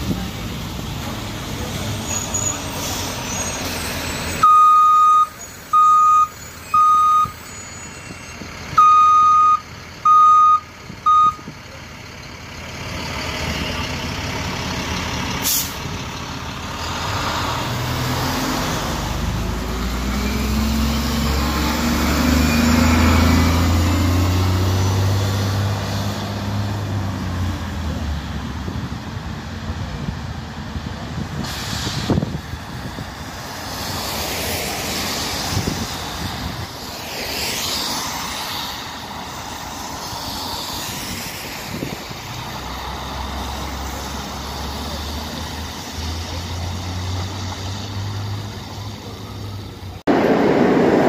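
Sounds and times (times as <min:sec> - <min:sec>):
bus warning beeps: 0:04.4 - 0:11.5
bus engine revving: 0:11.9 - 0:51.0
air brake hiss: 0:15.4 - 0:15.8, 0:31.4 - 0:32.3.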